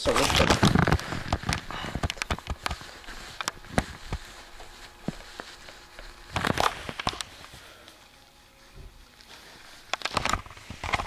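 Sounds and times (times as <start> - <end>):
camera handling rustling: 0.1 - 7.6, 9.8 - 11.0.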